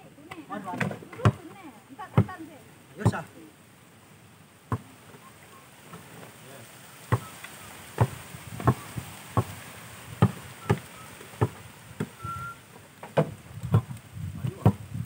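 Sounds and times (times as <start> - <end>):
basketball dribbling on dirt: 0.3 - 2.4, 3.0 - 3.3, 4.7 - 4.9, 7.1 - 7.3, 7.9 - 12.2, 13.1 - 15.0
brief high tone: 12.2 - 12.6.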